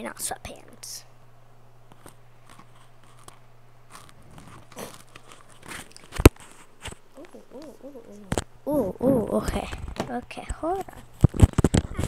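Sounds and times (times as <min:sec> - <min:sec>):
low steady hum: 0:00.0 - 0:12.0
phone handling clicks and rustles: 0:10.8 - 0:12.0.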